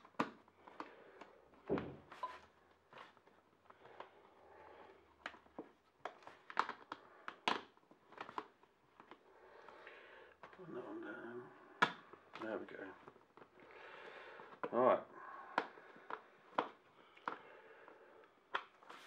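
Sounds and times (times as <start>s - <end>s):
clicks and knocks of plastic parts: 0.0s - 4.1s, 5.2s - 10.6s, 15.6s - 17.5s.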